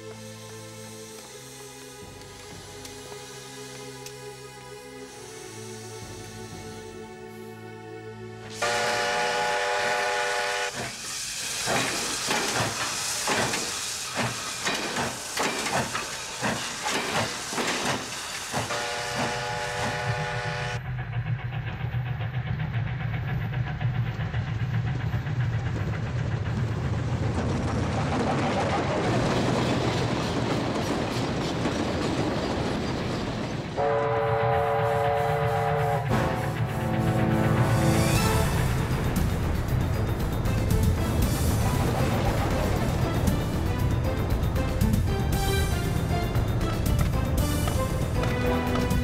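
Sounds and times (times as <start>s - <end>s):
low rumble of train running: 0.0s - 49.0s
steam locomotive chuffing: 8.5s - 49.0s
steam whistle blowing: 8.6s - 11.0s, 18.7s - 20.8s, 33.8s - 38.7s.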